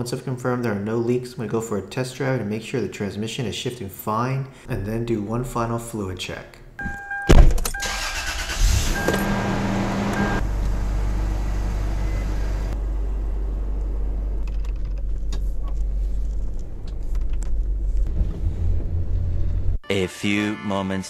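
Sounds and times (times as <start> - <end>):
truck engine rumbling: 7.8 - 19.8.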